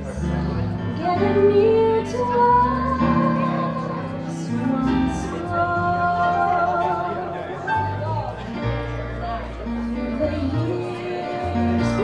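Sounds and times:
guitar: 0:00.0 - 0:12.0
keyboard: 0:00.0 - 0:12.0
woman singing: 0:01.0 - 0:07.6, 0:10.0 - 0:12.0.

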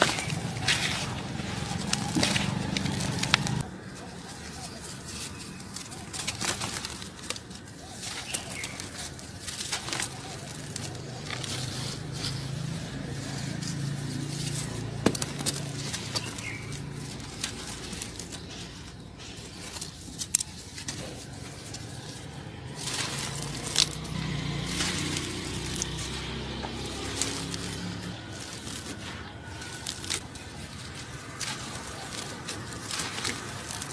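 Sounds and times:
hands crumbling dry earth: 0:00.0 - 0:33.9
loose grains falling: 0:21.6 - 0:33.9.

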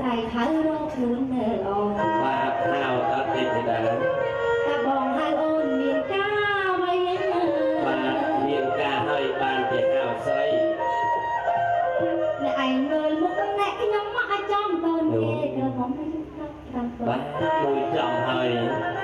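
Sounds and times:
woman singing into a microphone: 0:00.0 - 0:02.7, 0:04.4 - 0:08.6, 0:12.4 - 0:19.0
instrumental backing music: 0:00.0 - 0:19.0.

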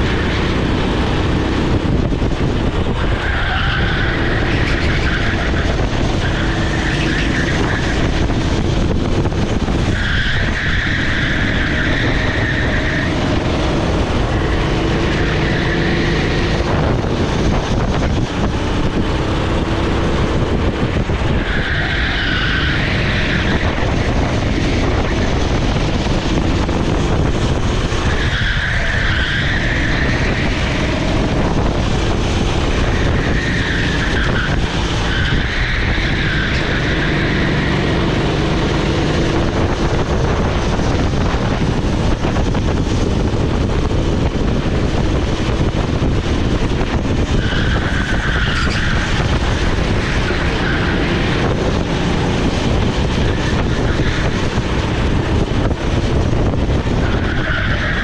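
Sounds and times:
kart engine revving: 0:00.0 - 0:58.0
tyres squealing: 0:02.9 - 0:08.6, 0:21.2 - 0:25.8, 0:32.6 - 0:38.8, 0:47.2 - 0:52.0, 0:56.9 - 0:58.0.

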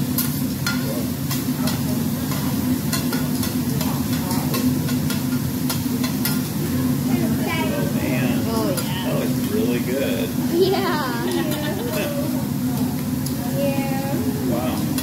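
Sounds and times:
egg sizzling on griddle: 0:00.0 - 0:15.0
metal spatula clinking on griddle: 0:00.2 - 0:06.4.

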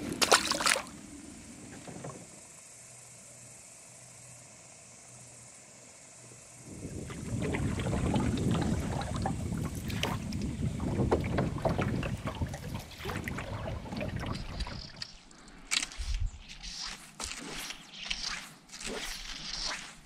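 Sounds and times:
paddle splashing in water: 0:00.0 - 0:00.9, 0:06.9 - 0:15.2
wind rumble on microphone: 0:06.6 - 0:15.0.

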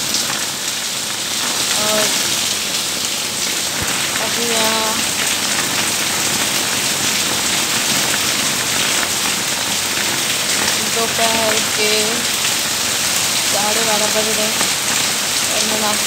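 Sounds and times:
rain falling: 0:00.0 - 0:16.0
woman's voice: 0:01.7 - 0:02.2, 0:04.2 - 0:05.1, 0:10.7 - 0:12.3, 0:13.5 - 0:14.6, 0:15.5 - 0:16.0.

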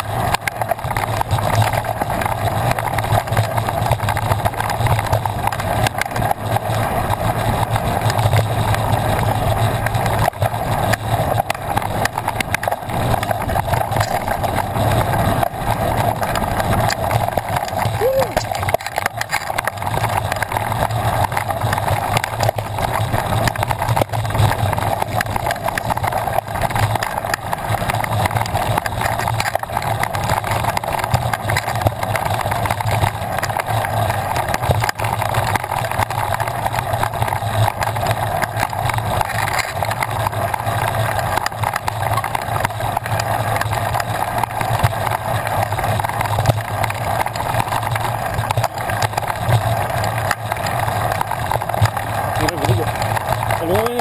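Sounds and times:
clatter of small knocks: 0:10.2 - 0:14.6.

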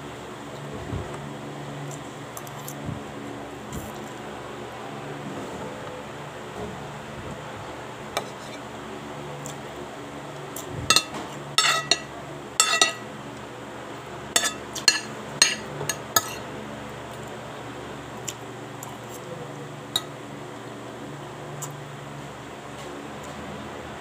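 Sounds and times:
metal spoon clinking on plate: 0:10.9 - 0:13.1, 0:14.4 - 0:16.4.

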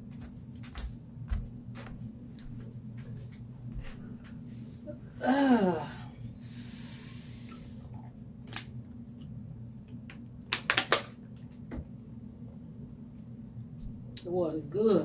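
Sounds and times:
steady low hum: 0:00.0 - 0:15.0
person sighing: 0:05.2 - 0:06.2
breathy hiss: 0:05.8 - 0:07.9.

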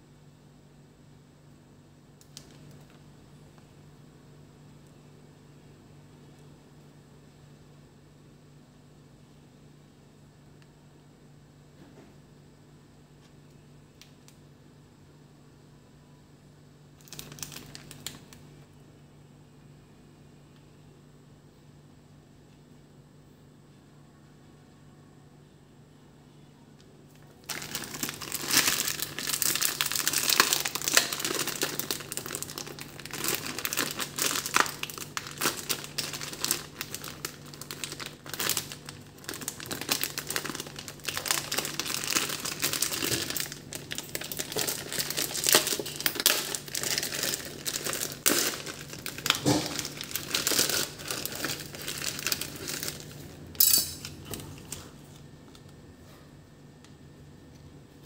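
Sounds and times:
plastic wrapper crinkling: 0:02.2 - 0:03.0, 0:17.0 - 0:18.5, 0:27.1 - 0:53.4.

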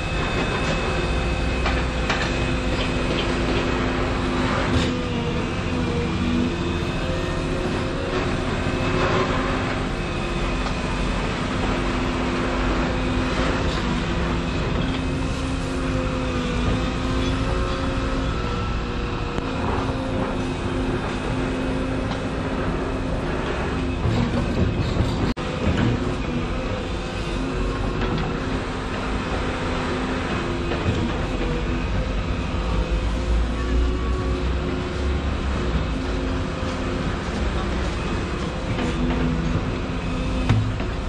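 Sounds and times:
excavator engine and hydraulic whine: 0:00.0 - 0:41.0.

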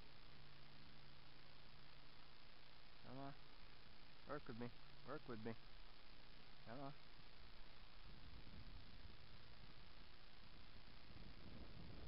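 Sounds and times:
steady hiss: 0:00.0 - 0:12.0
wind rumble on microphone: 0:08.0 - 0:12.0.

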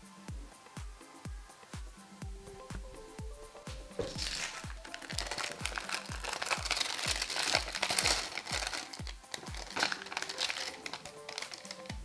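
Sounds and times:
background music with beat: 0:00.0 - 0:12.0
packaging crinkling: 0:04.0 - 0:12.0.

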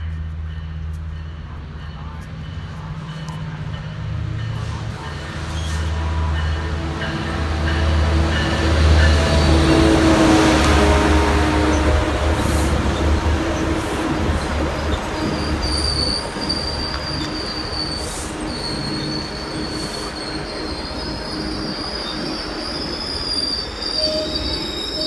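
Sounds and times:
locomotive engine drone: 0:00.0 - 0:25.0
train coaches rolling past: 0:00.0 - 0:25.0
high wheel squeal: 0:11.6 - 0:25.0.

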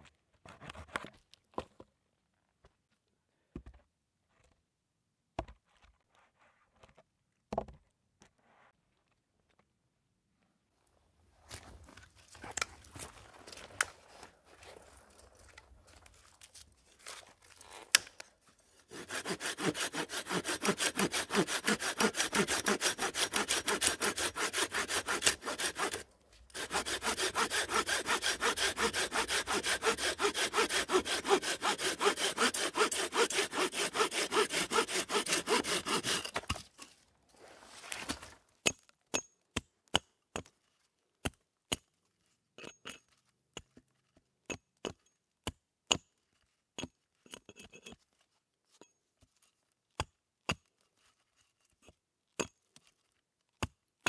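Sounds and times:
folding saw cutting a log: 0:18.8 - 0:36.7.

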